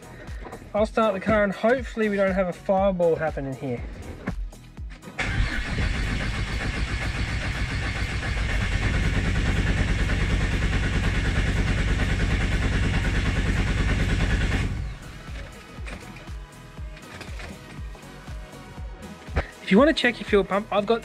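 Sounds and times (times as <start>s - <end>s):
car engine cranking: 5.0s - 16.3s.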